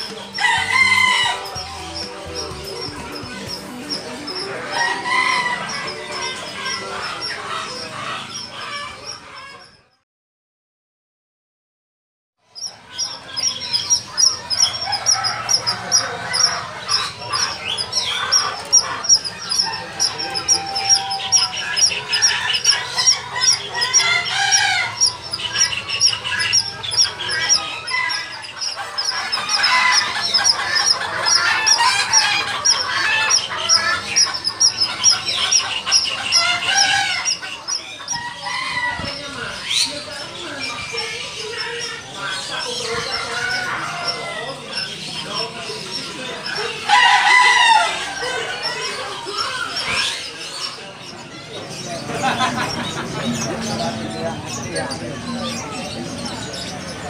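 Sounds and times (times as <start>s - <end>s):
fowl clucking and crowing: 0.0s - 8.7s, 14.5s - 39.4s, 46.6s - 48.8s
caged birds calling: 0.0s - 10.0s, 12.5s - 57.0s
fast high-pitched chirping: 12.6s - 43.4s.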